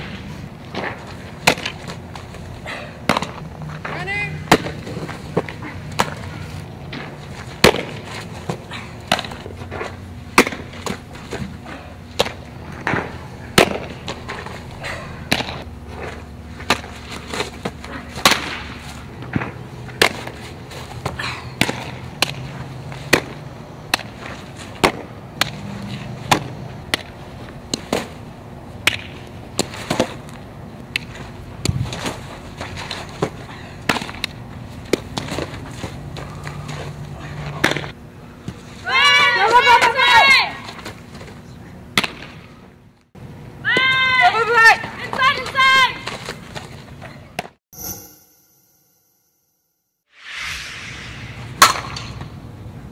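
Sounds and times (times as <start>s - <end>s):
softballs smacking into gloves: 0.7s - 2.2s, 3.0s - 6.2s, 15.3s - 15.6s
steady low hum: 50.2s - 52.9s.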